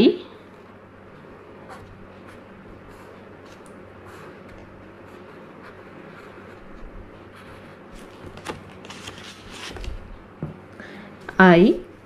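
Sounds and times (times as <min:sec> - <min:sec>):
steady low hum: 0:00.0 - 0:12.0
pen scratching on paper: 0:01.6 - 0:08.2.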